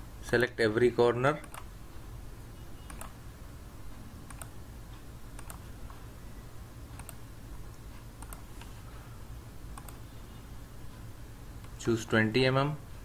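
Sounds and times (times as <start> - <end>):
low steady hum: 0.0 - 13.0
mouse and keyboard clicks: 2.9 - 3.2, 4.3 - 4.6, 5.4 - 5.7, 6.9 - 8.7, 9.8 - 10.0.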